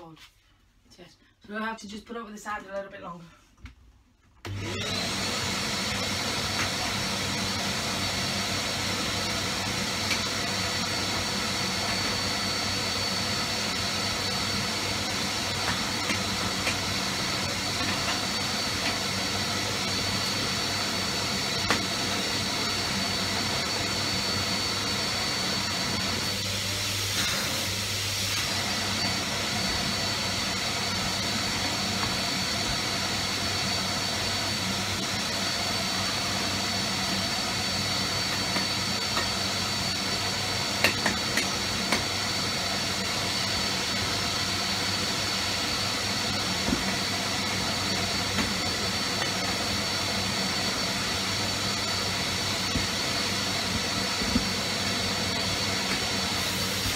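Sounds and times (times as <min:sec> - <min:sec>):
vacuum cleaner whining: 0:04.4 - 0:56.9.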